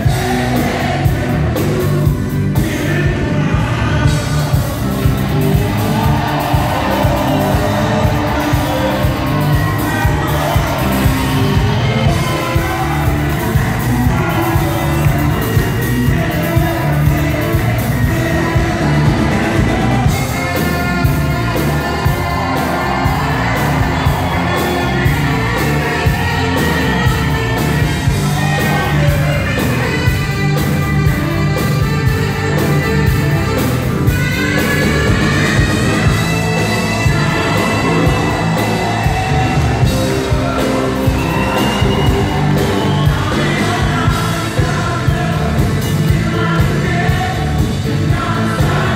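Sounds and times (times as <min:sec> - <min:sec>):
live pop band: 0:00.0 - 0:48.9
saxophone solo: 0:04.0 - 0:48.9
audience shouts and whoops: 0:04.8 - 0:30.2, 0:34.1 - 0:44.8.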